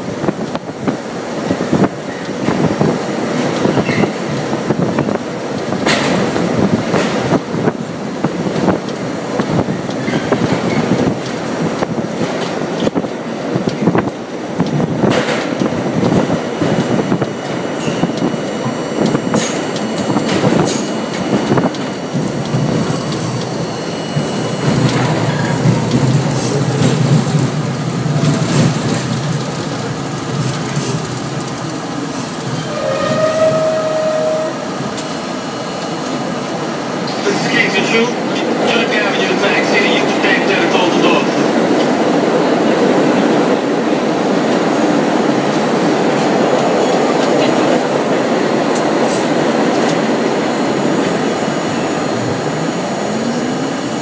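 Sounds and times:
subway train wheels rumbling: 0.0s - 54.0s
wheels clacking over rail joints: 14.6s - 34.2s.

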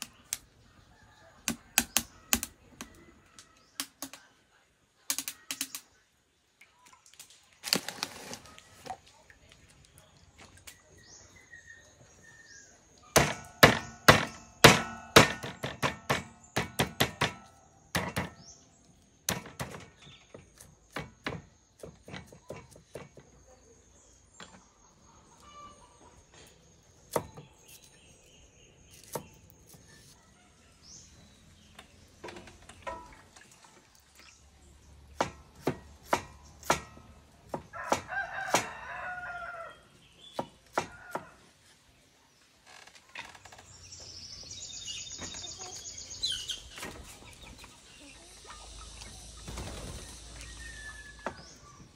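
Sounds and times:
cleaver chopping on wooden block: 13.2s - 18.4s, 20.9s - 23.1s, 35.2s - 38.7s, 40.2s - 41.3s
rooster crowing: 37.7s - 39.8s.

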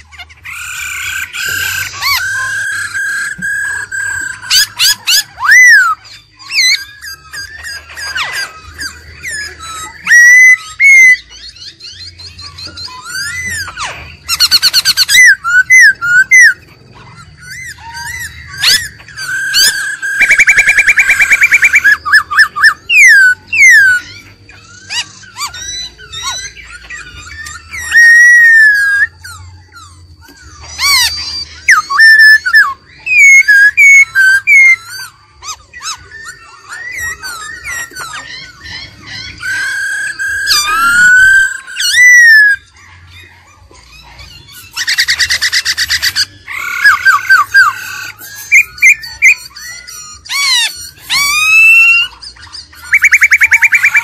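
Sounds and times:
bird singing whistled phrases: 0.0s - 54.0s.

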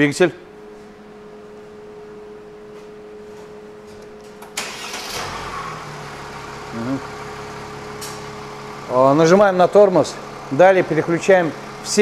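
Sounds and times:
steady hum: 0.0s - 12.0s
car engine starting and idling: 4.1s - 12.0s.

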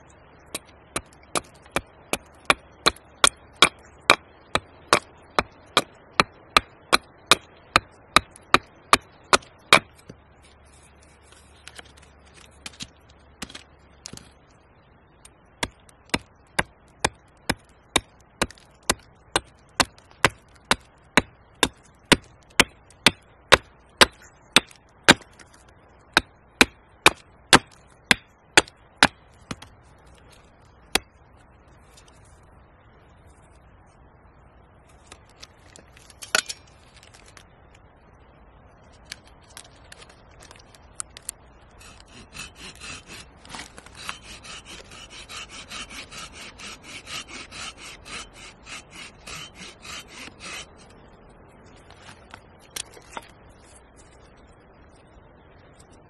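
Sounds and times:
hatchet chopping wood: 0.5s - 9.9s, 15.6s - 25.3s, 26.1s - 29.7s, 41.8s - 50.8s.

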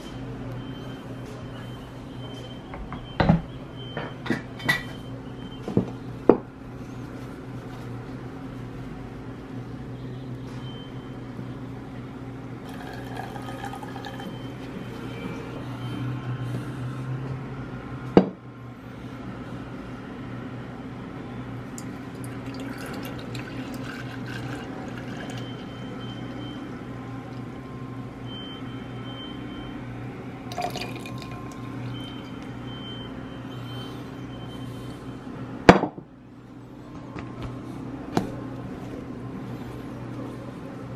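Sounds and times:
liquid trickling and dripping: 21.8s - 25.6s, 30.5s - 32.3s.

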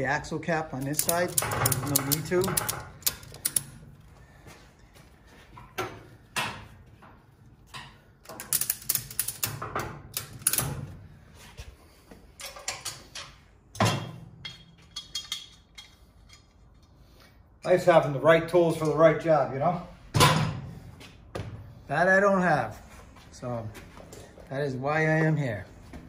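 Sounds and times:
metal hand tools clicking and clanking: 0.8s - 3.8s, 14.4s - 17.0s.

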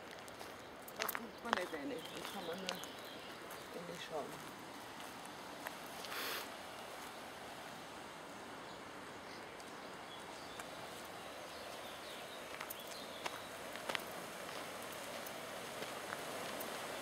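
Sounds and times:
low outdoor rush: 0.0s - 17.0s
brief hiss: 6.0s - 6.5s.

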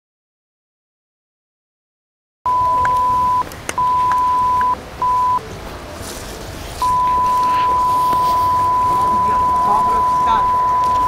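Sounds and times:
censor bleep tone: 2.5s - 5.4s, 6.8s - 11.0s
faint background noise: 2.5s - 11.0s.

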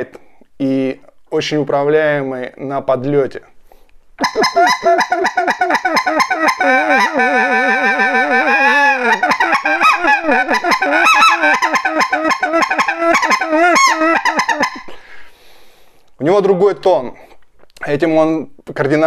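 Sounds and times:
goose call yelping: 4.2s - 14.9s.

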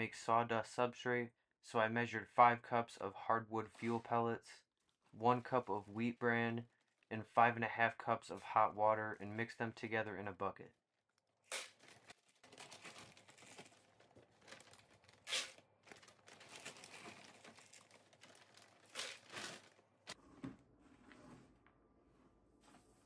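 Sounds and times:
plastic bag rustling: 5.0s - 7.1s, 11.6s - 20.2s.

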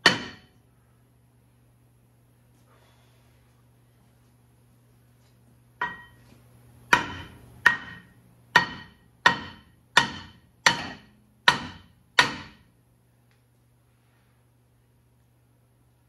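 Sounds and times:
hammer striking metal rotor: 6.9s - 12.6s.

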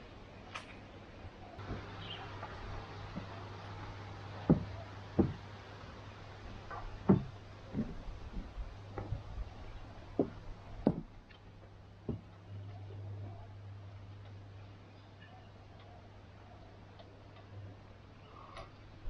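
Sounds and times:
low steady hum: 0.0s - 19.0s
footsteps on wooden deck: 1.6s - 12.4s.

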